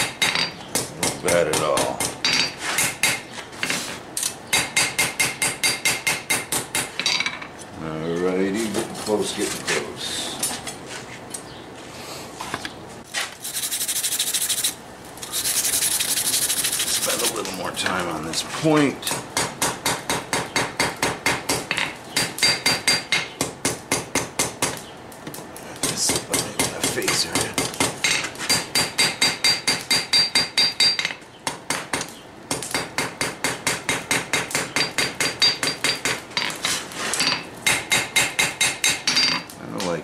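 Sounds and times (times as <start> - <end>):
hammer striking steel on anvil: 4.5 - 7.4, 25.8 - 36.5, 37.3 - 39.4.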